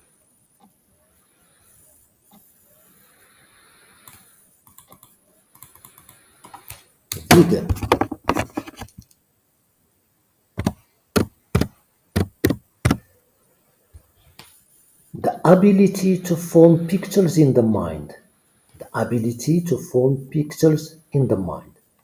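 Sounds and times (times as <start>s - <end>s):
keyboard typing: 4.0s - 9.0s, 10.6s - 13.0s.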